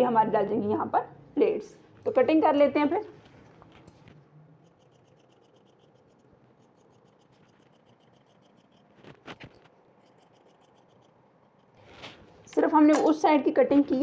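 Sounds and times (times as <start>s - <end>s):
scissors snipping cloth: 4.6s - 11.7s.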